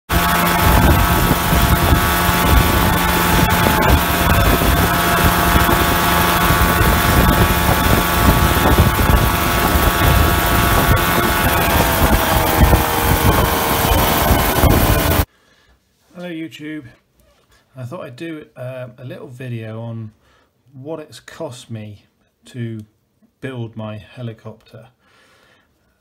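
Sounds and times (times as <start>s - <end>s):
helicopter engine and rotors droning: 0.1s - 15.3s.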